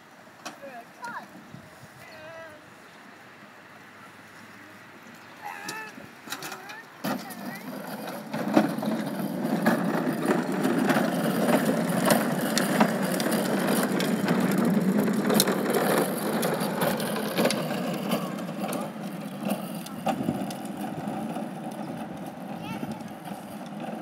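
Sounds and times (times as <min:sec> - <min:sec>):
wagon wheels rolling on concrete: 0:04.3 - 0:24.0
rattling and sharp clicks: 0:06.3 - 0:24.0.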